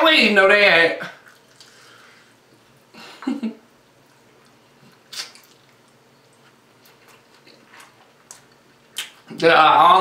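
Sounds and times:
person biting and chewing: 0:04.4 - 0:09.3.

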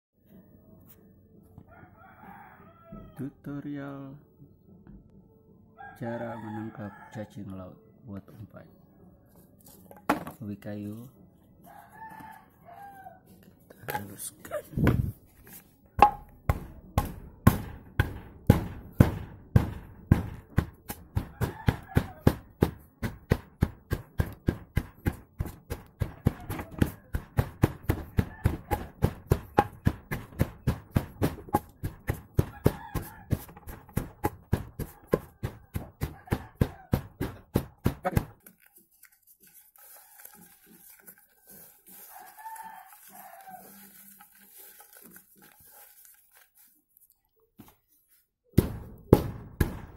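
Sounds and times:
stick pounding in hard container: 0:16.0 - 0:38.4.

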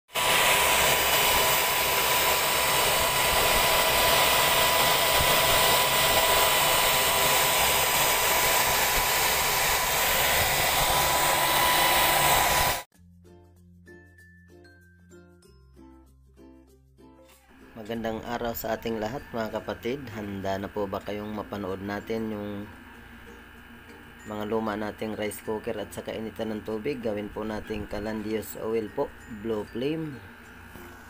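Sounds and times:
stove blower roaring: 0:00.1 - 0:12.9, 0:17.6 - 0:31.0
soft plucked music: 0:13.0 - 0:26.5
thin constant whine: 0:17.6 - 0:31.0.

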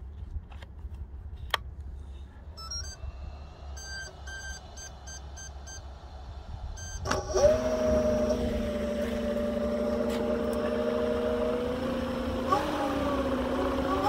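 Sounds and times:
short beeps: 0:02.6 - 0:03.1, 0:03.7 - 0:05.9, 0:06.8 - 0:07.1
electric motor whirring: 0:06.8 - 0:14.0.

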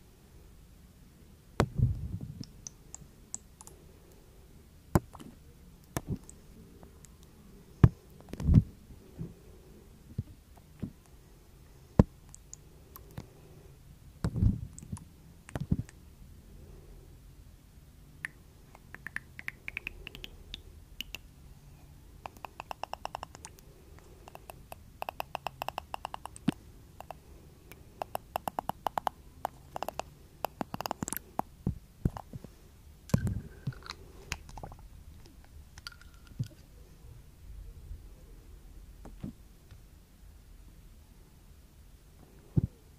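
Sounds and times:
soft low thumps: 0:01.6 - 0:02.5.

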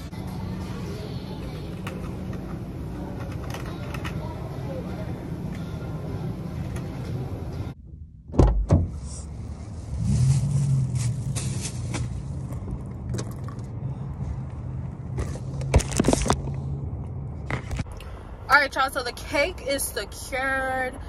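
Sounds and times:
car door shutting: 0:07.8 - 0:09.1.

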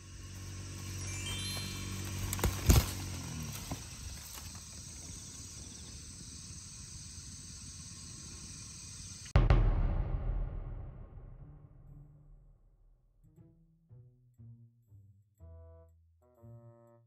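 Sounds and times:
insects calling: 0:00.0 - 0:09.4
music: 0:01.0 - 0:02.5, 0:09.4 - 0:17.0
loud low sound: 0:09.4 - 0:12.9.

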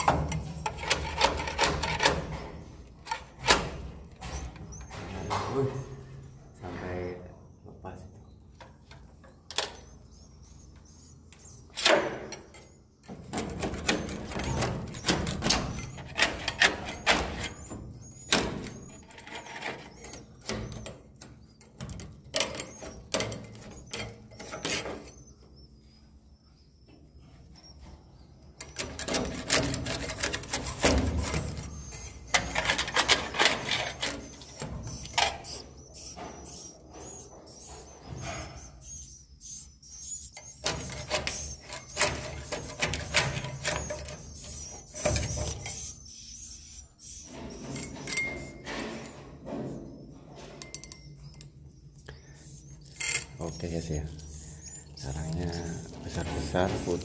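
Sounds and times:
faint high twittering: 0:13.8 - 0:57.0.

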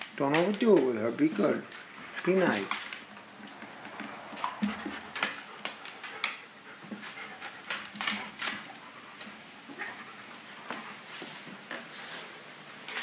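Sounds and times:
short irregular clicks and scuffs: 0:00.0 - 0:09.5
dog panting: 0:01.1 - 0:11.6.

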